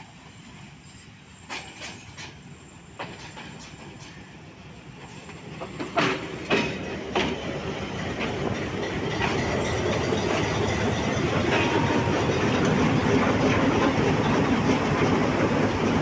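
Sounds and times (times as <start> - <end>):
wheels clacking over rail joints: 5.0 - 16.0
diesel locomotive engine running: 5.3 - 16.0.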